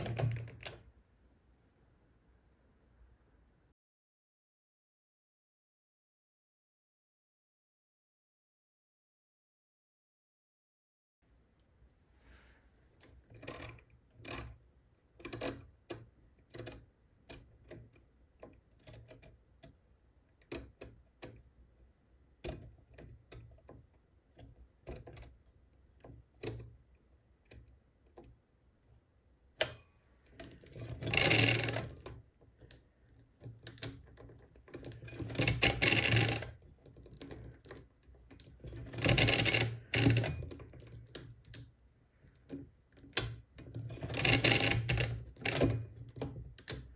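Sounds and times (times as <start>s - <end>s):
calculator levers clicking: 30.4s - 32.2s, 33.5s - 37.8s, 38.4s - 41.0s, 43.1s - 45.9s
crank ratchet clattering: 31.0s - 32.0s, 35.3s - 36.5s, 38.9s - 40.4s, 44.0s - 45.7s.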